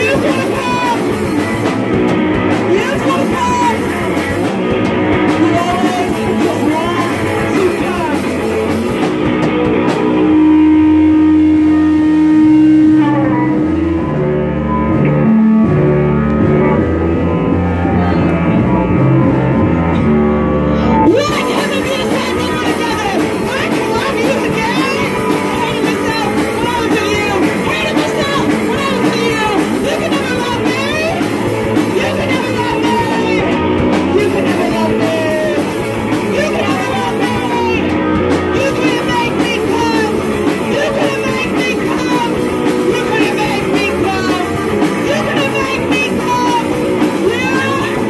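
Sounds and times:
person singing into microphone: 0:00.0 - 0:01.6, 0:02.6 - 0:04.0, 0:05.3 - 0:08.5, 0:20.7 - 0:48.0
bass guitar: 0:00.0 - 0:48.0
drum kit: 0:00.0 - 0:48.0
electric guitar: 0:00.0 - 0:48.0.

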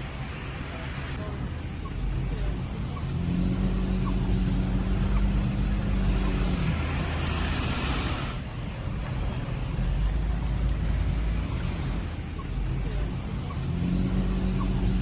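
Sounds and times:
steady low drone: 0:00.0 - 0:15.0
traffic rumble inside car: 0:00.0 - 0:15.0.

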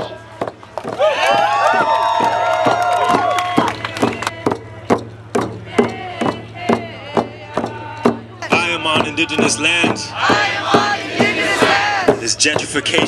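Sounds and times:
hand drums beating: 0:00.4 - 0:13.0
group singing together: 0:03.6 - 0:12.2.

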